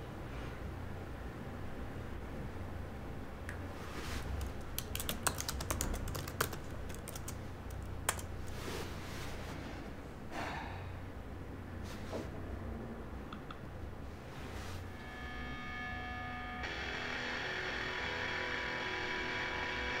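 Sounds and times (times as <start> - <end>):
laptop keyboard typing: 4.2 - 8.5.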